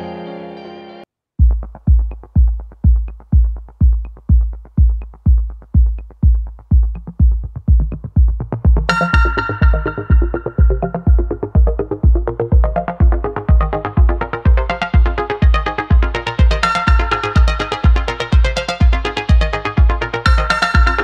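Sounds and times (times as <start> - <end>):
soft keyboard music: 0.0 - 1.1, 8.8 - 21.0
drum machine kick: 1.4 - 21.0
synth parts: 8.5 - 21.0.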